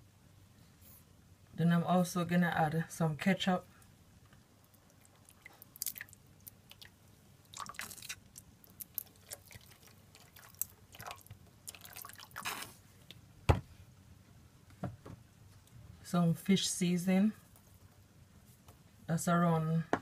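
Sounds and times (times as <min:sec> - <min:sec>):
wet squelches and drips: 0:04.3 - 0:13.2.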